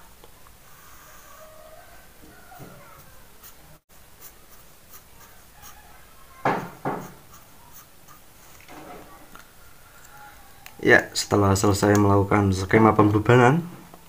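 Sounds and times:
marker scratching on paper: 2.6 - 8.6.

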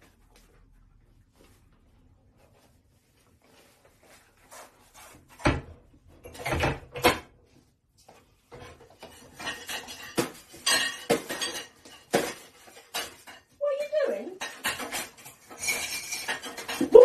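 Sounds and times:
dishes and cutlery clinking: 8.4 - 17.0.

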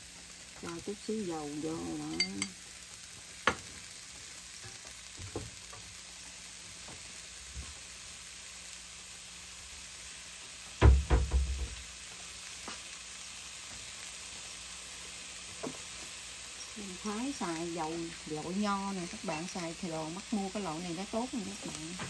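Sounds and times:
mushrooms sizzling in a pan: 0.0 - 22.0
knocks and thumps: 10.8 - 11.8.

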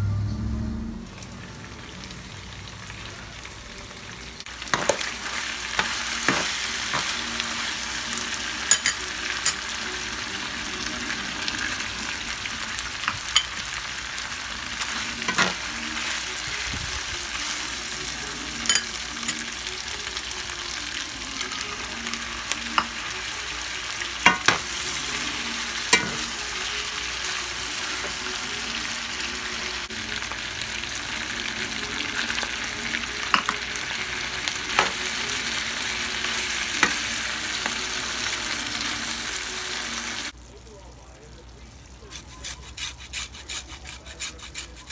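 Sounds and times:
meat sizzling in a skillet: 1.1 - 40.6
metal spoon clinking on pan: 8.6 - 9.6, 18.6 - 19.4.

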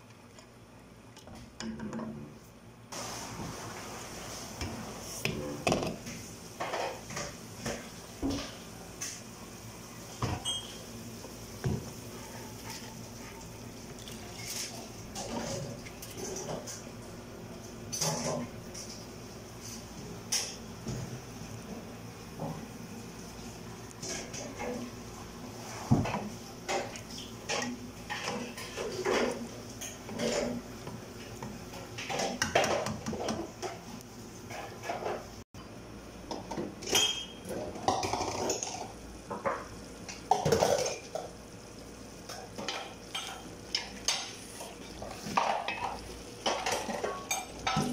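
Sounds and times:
spoon scraping and clanking on pot: 25.8 - 31.0, 42.3 - 47.9.

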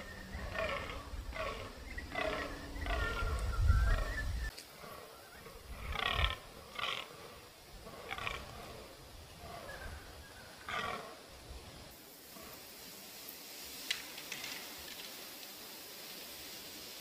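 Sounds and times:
deer croaking calls: 0.0 - 11.3.

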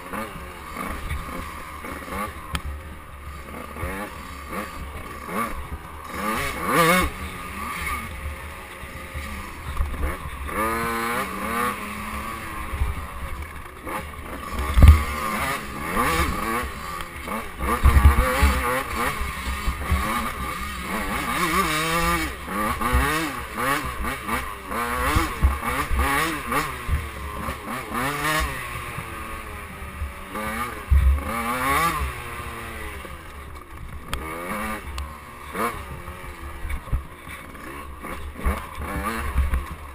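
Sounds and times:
dirt bike engine revving: 0.0 - 39.9
heavy thumps from bumps: 14.7 - 15.1.

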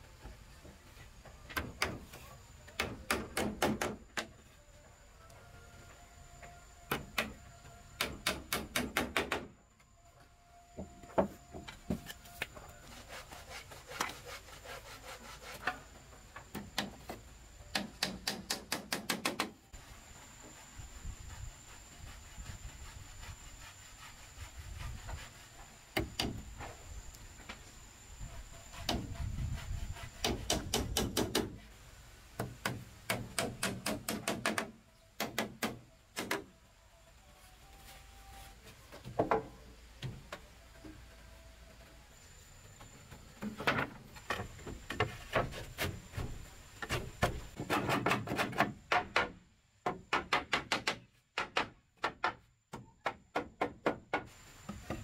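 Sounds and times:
hammer driving nails into wood: 2.8 - 4.0, 8.0 - 9.5, 17.7 - 19.6, 30.2 - 31.6, 32.4 - 36.5, 47.2 - 52.4.

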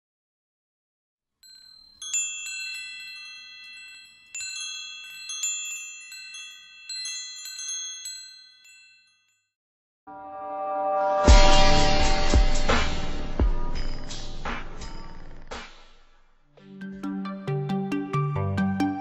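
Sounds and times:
high chime notes ringing: 1.4 - 9.5.

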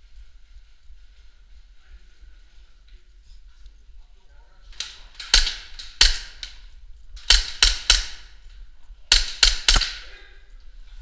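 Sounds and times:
airsoft pistol shots: 5.2 - 6.6, 7.2 - 8.4, 9.1 - 10.1.

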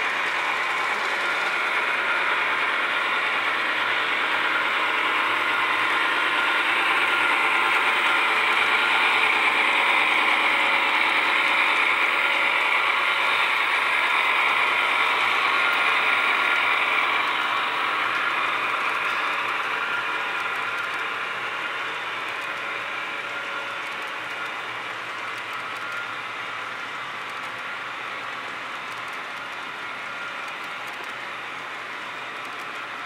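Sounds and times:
model train wheels rattling on rail: 0.0 - 33.0.

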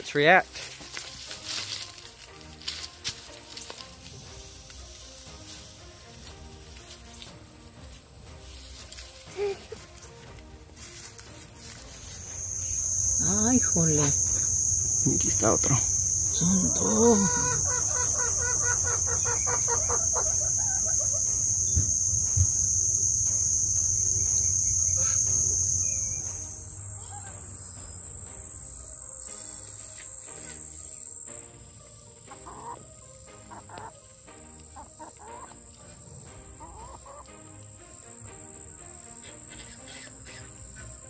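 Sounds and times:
high-pitched insect chorus: 0.0 - 41.0
chicken calling: 12.0 - 27.6, 32.3 - 34.0, 34.8 - 37.3
small animal calls: 12.1 - 22.7, 36.6 - 37.3, 39.2 - 41.0.

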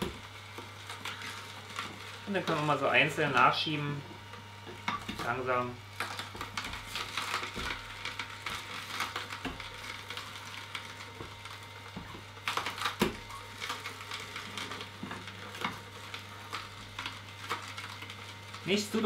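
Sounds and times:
juicer motor hum: 0.0 - 19.0
carrots crunching and cracking: 4.8 - 19.0.

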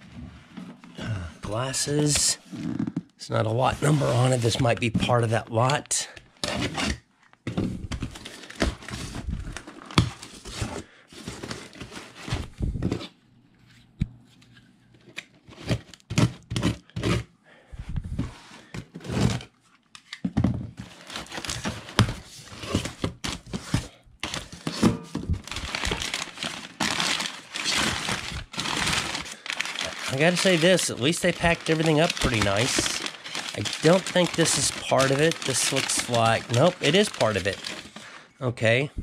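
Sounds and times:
packing paper crinkling: 20.8 - 24.7, 25.4 - 38.2
packing tape tearing: 25.5 - 38.2.

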